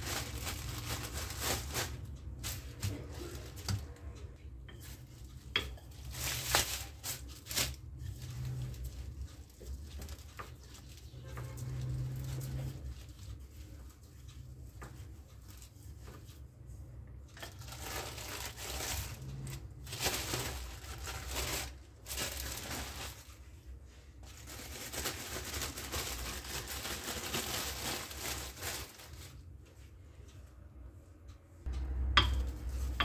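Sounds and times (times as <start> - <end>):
plastic film crinkling: 0.0 - 4.0, 4.8 - 14.1, 17.3 - 23.4, 24.2 - 29.4
rolling pin over plastic film: 0.0 - 16.4, 17.3 - 29.5.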